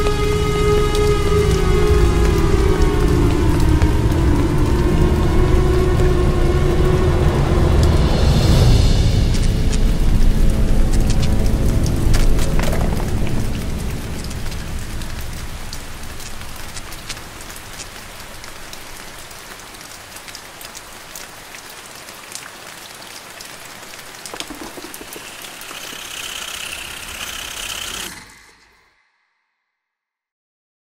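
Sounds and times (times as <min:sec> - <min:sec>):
low rumble: 0:00.0 - 0:17.8
steady rain falling: 0:00.0 - 0:28.8.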